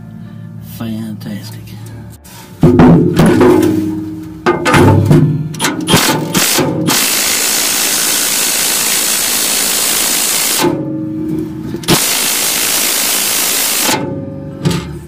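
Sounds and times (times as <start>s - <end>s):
impact wrench hammering: 4.4s - 10.8s, 11.8s - 14.9s.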